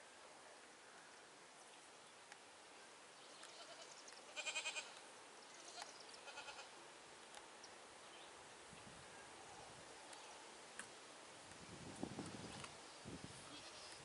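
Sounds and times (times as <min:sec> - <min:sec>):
distant goat bleating: 0:03.4 - 0:05.0, 0:05.6 - 0:06.7, 0:13.5 - 0:14.0.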